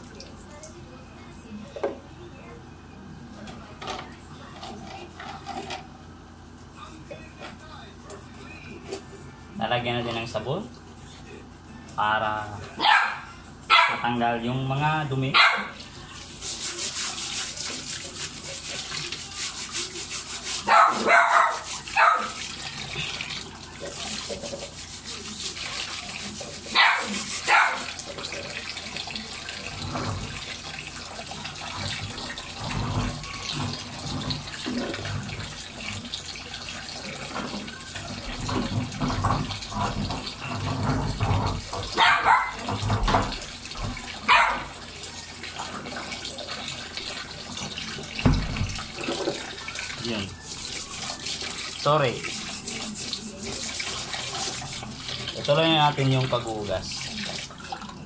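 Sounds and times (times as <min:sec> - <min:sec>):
dog barking: 0:12.8 - 0:14.1, 0:15.3 - 0:15.8, 0:20.6 - 0:22.4, 0:26.7 - 0:27.9, 0:41.9 - 0:42.7, 0:44.2 - 0:44.8
tap running water on wire guard: 0:15.6 - 0:58.0.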